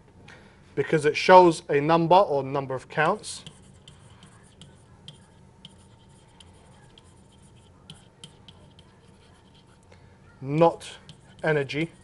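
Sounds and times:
stylus tapping on pen tablet: 3.4 - 9.1.

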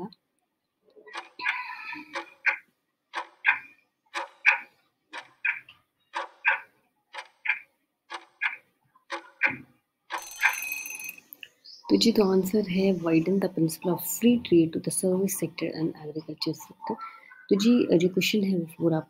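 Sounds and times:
clock tick-tock: 1.1 - 11.4.

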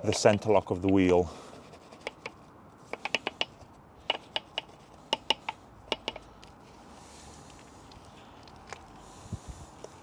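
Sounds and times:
brush clicking against wheel: 1.8 - 6.6.

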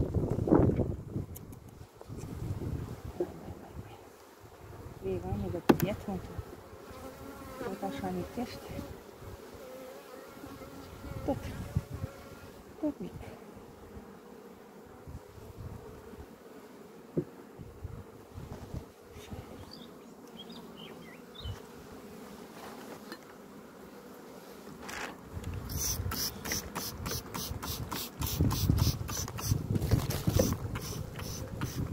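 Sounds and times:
bees buzzing: 4.3 - 31.9.

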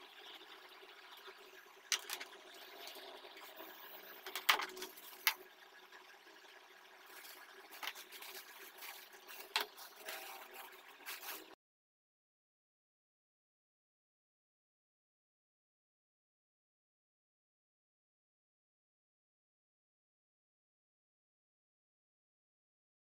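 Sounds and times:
cables clicking and knocking on desk: 1.9 - 2.3, 4.2 - 5.4, 7.2 - 10.4
plastic bags crinkling: 7.1 - 11.6.

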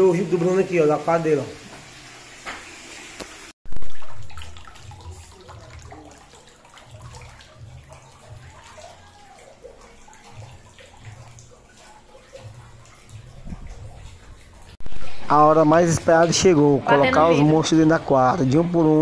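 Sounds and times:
water sloshing in tub: 3.7 - 15.1.

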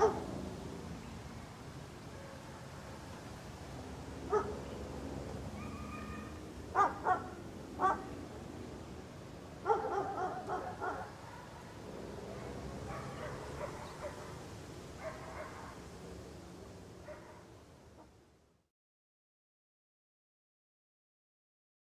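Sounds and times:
small dog barking and yipping: 0.0 - 0.3, 4.3 - 4.6, 5.5 - 8.1, 9.6 - 11.7, 12.4 - 14.4, 15.0 - 15.8.

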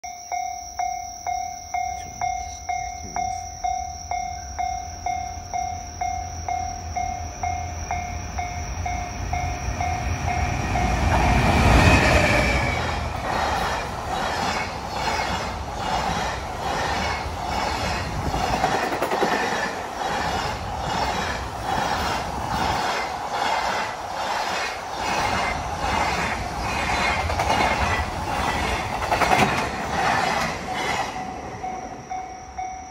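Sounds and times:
level-crossing bell ringing: 0.0 - 13.2, 30.6 - 32.9
freight train passing: 1.3 - 32.9
train wheels clacking over rail joints: 10.8 - 31.4.

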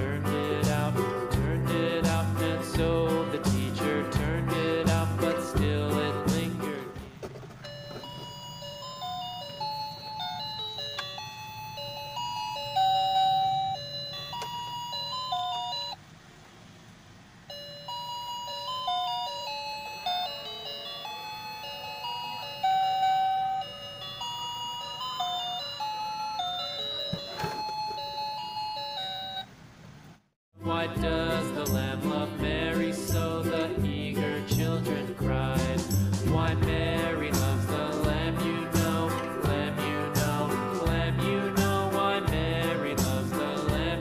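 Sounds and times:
toy electronic tune: 7.6 - 16.0, 17.5 - 29.5.

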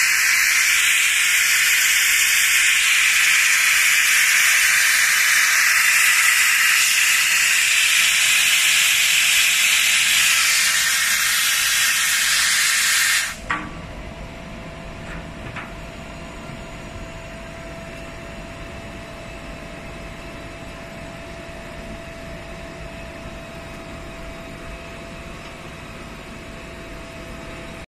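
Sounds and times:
plasma cutter hissing: 0.0 - 13.5.

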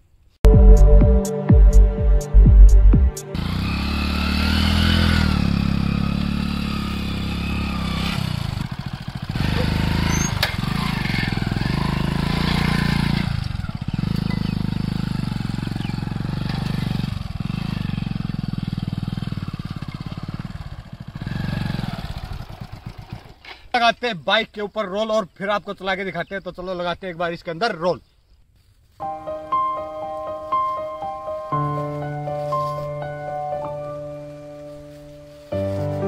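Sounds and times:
motorcycle engine revving: 3.1 - 23.7.

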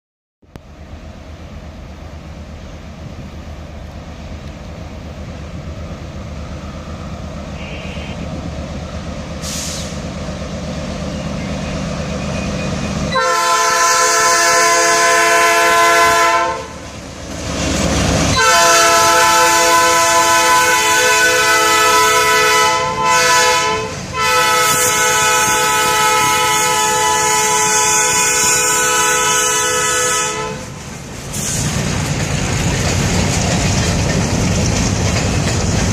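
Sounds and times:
locomotive rumbling: 0.4 - 35.9
boxcars rolling past: 0.8 - 35.9
locomotive air horn blasts: 7.6 - 8.3, 13.1 - 16.8, 18.3 - 30.8.

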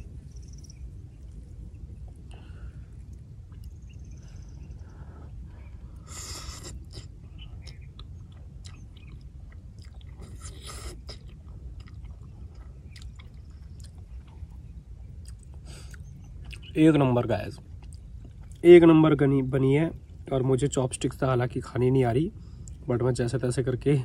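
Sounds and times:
person chewing: 6.0 - 16.7, 17.6 - 18.6.

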